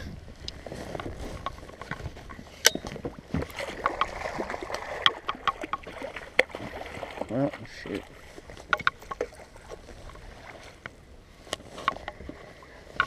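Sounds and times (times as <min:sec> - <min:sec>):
water lapping against a boat: 0:00.0 - 0:13.0
fishing gear knocking: 0:05.0 - 0:06.5, 0:08.5 - 0:09.4.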